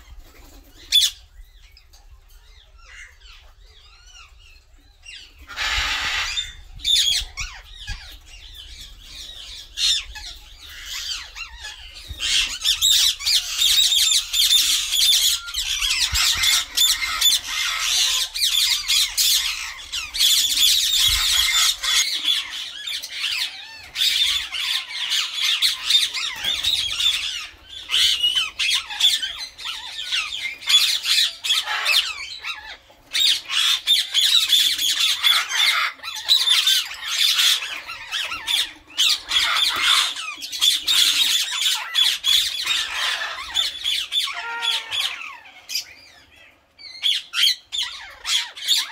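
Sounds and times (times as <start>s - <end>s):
parakeets calling: 2.7s - 48.9s.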